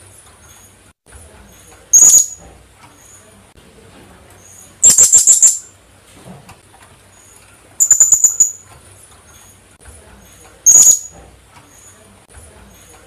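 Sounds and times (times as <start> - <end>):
parrot shrill calls: 1.9 - 2.4, 4.8 - 5.7, 7.8 - 8.6, 10.7 - 11.1.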